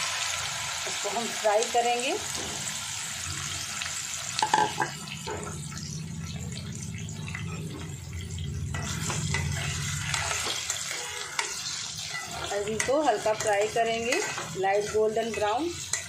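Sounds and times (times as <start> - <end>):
food sizzling in hot oil: 0.0 - 16.0
spatula scraping a pan: 8.7 - 16.0.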